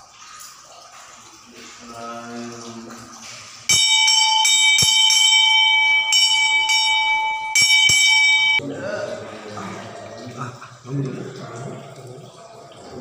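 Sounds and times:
temple bell ringing: 0:03.7 - 0:08.6.

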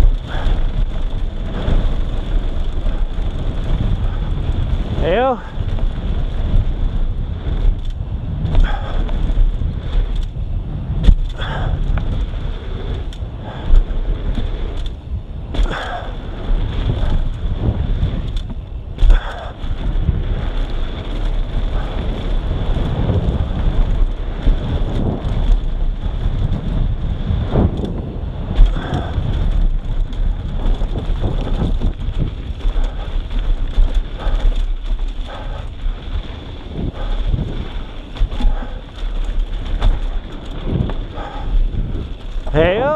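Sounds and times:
bike rattling: 0:00.0 - 0:42.9
tyres crunching on dirt: 0:00.0 - 0:42.9
wind buffeting microphone: 0:00.0 - 0:42.9
bike landing knocks: 0:15.4 - 0:16.0.

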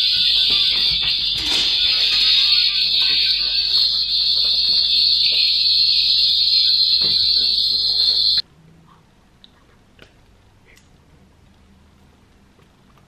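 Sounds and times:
high-pitched electronic tone: 0:00.0 - 0:08.4.

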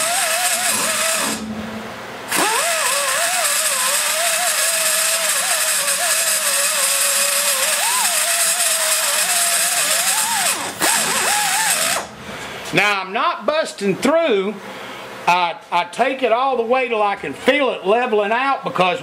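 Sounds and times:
die grinder whining cutting metal: 0:00.0 - 0:12.2.

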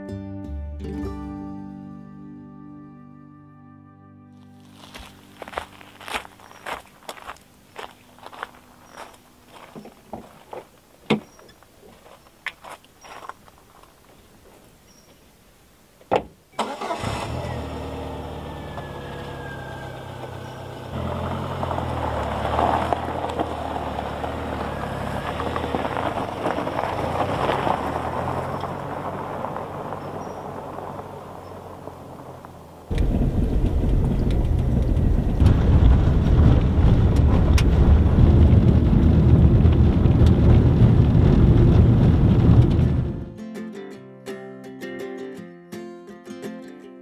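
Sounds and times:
car pulling away over gravel: 0:04.4 - 0:14.0, 0:16.6 - 0:43.3
engine and tyre rumble on gravel: 0:04.4 - 0:15.3, 0:16.6 - 0:43.3
car engine starting and idling: 0:16.6 - 0:43.3.

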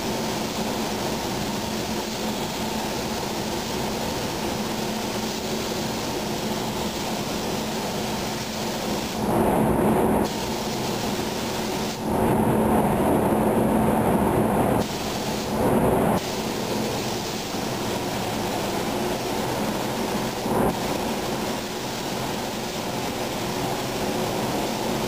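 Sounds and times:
rushing air in spray booth: 0:00.0 - 0:25.0.

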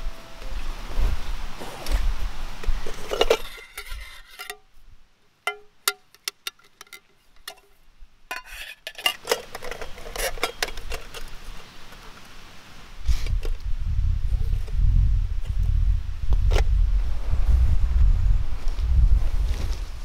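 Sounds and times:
rustling: 0:00.0 - 0:04.9, 0:18.6 - 0:20.0
metal pots clinking: 0:02.9 - 0:04.7, 0:05.5 - 0:07.7, 0:08.3 - 0:11.3.

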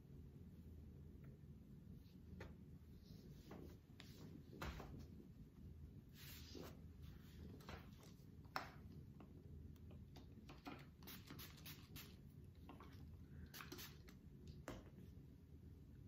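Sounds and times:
pump spray bottle spritzing: 0:10.7 - 0:12.2, 0:13.5 - 0:14.2.

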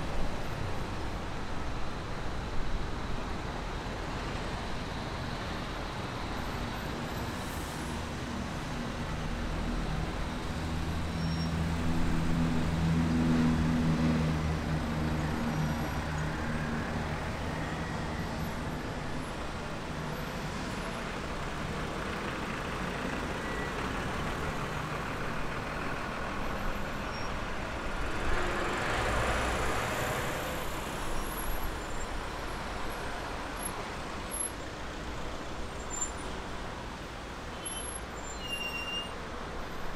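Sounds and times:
heavy road traffic: 0:00.0 - 0:39.9
truck diesel engine hum: 0:11.9 - 0:29.7.

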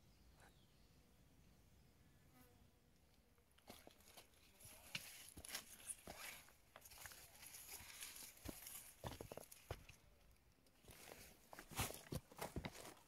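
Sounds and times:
leaves and ferns rustling: 0:03.6 - 0:09.9
footsteps on forest trail: 0:03.6 - 0:10.0, 0:10.8 - 0:13.0.

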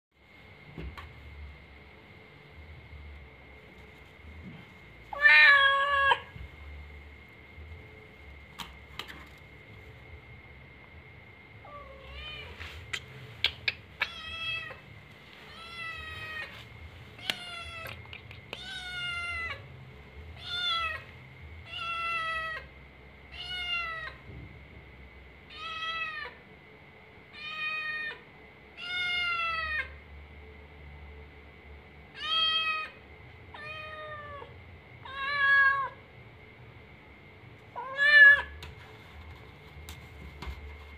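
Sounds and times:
cat meowing: 0:05.1 - 0:06.3.

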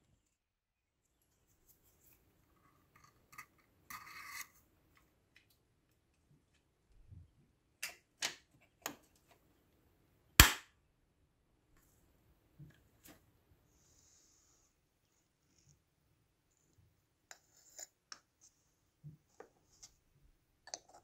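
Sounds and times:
sharp metallic snap: 0:10.4 - 0:10.7.

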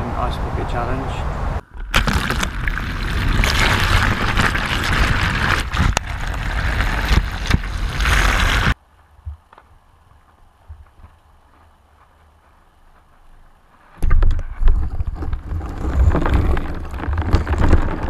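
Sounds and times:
water pouring into plastic bucket: 0:01.9 - 0:08.8.

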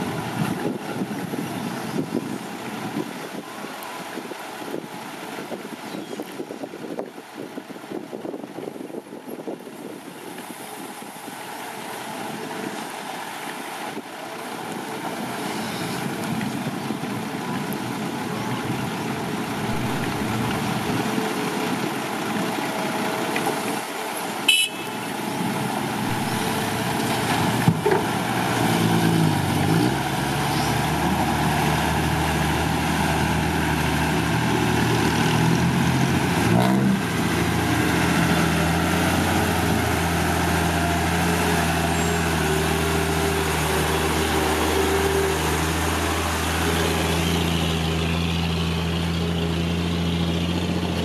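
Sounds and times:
truck diesel engine labouring: 0:10.3 - 0:51.0
short horn toot: 0:24.5 - 0:25.0.

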